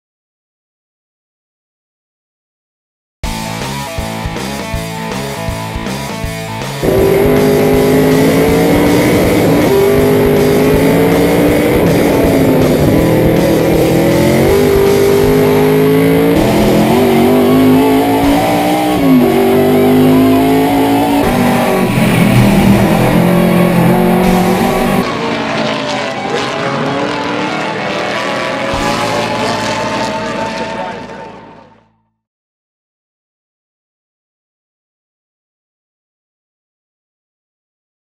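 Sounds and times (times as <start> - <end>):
music: 3.2 - 25.1, 28.6 - 32.2
race car engine accelerating: 6.2 - 32.0.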